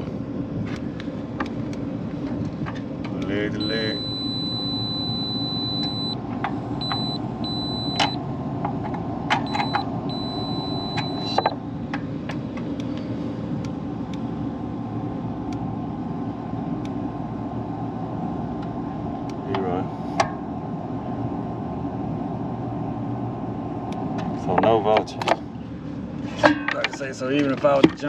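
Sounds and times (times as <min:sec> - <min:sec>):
steady low rumble: 0:00.0 - 0:28.0
multimeter electronic beep: 0:03.5 - 0:06.2, 0:06.8 - 0:08.2, 0:09.4 - 0:11.6.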